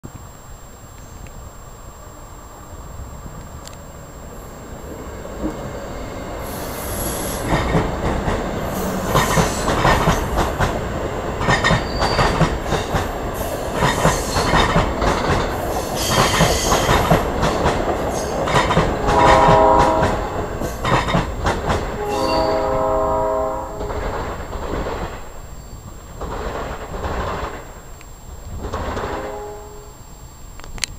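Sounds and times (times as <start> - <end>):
train wheels clattering over rail joints: 6.4 - 22.1, 23.7 - 29.5
train horn: 19.0 - 20.7, 21.9 - 24.1, 29.0 - 30.0.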